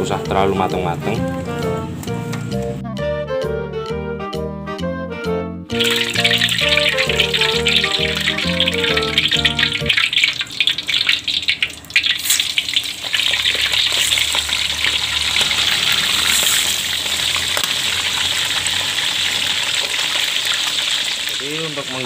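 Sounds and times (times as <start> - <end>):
loud steady sizzle of frying: 5.8 - 22.0
oil crackling: 5.8 - 22.0.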